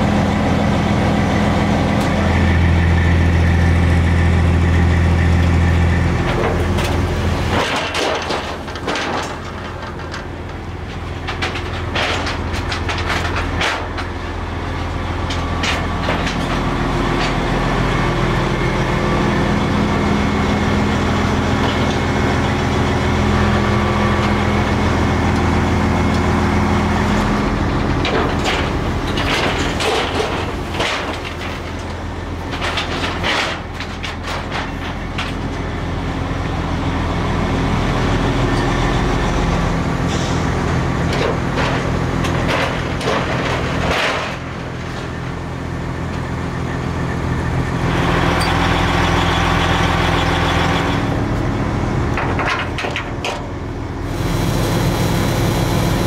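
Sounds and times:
engine running: 0.0 - 56.0
metal clanks and rattles: 6.2 - 17.5, 27.2 - 35.8, 40.2 - 45.4, 52.1 - 53.5.

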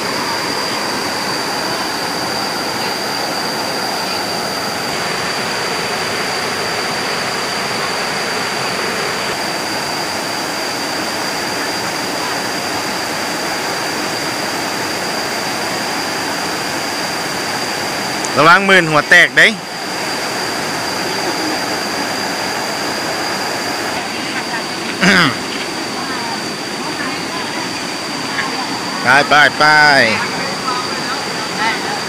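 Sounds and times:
water rushing over rocks: 0.0 - 32.0.

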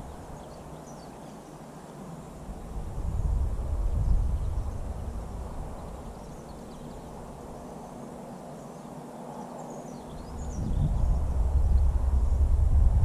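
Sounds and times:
small birds chirping: 0.0 - 12.4
wind buffeting microphone: 2.2 - 7.8, 10.0 - 13.0.

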